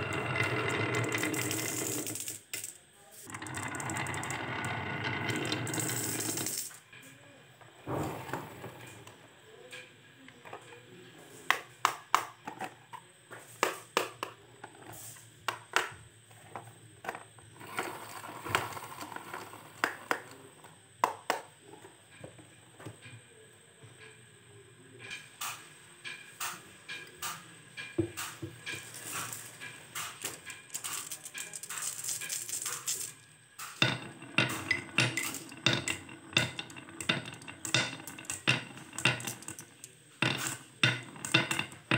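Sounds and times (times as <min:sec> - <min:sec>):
marbles clacking on wooden track: 0:00.0 - 0:06.8, 0:26.4 - 0:41.9
marbles rolling rumble: 0:00.0 - 0:06.8, 0:17.5 - 0:20.6, 0:28.6 - 0:41.9.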